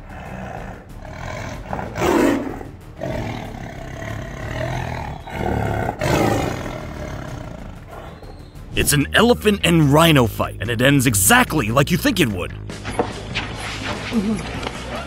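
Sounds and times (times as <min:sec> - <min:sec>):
tiger roaring: 0:00.0 - 0:08.4.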